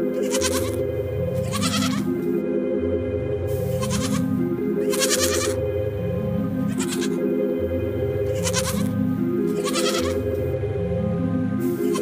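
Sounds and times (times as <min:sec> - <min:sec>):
background music: 0:00.0 - 0:12.0
goat kids bleating: 0:00.2 - 0:00.8, 0:01.4 - 0:02.2, 0:03.7 - 0:05.6, 0:06.7 - 0:07.2, 0:08.3 - 0:08.9, 0:09.5 - 0:10.3, 0:11.8 - 0:12.0.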